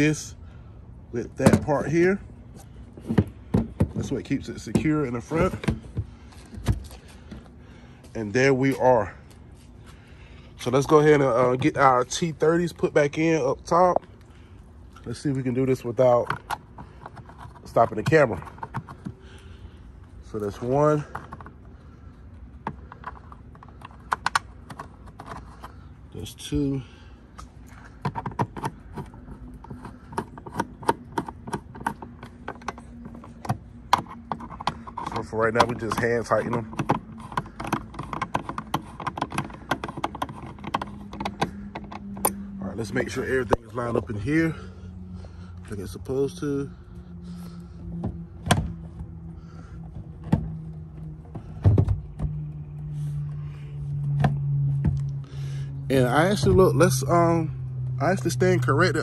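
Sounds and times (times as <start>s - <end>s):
low hum: 18.4s - 59.0s
ratcheting hand driver clicking: 28.0s - 42.4s.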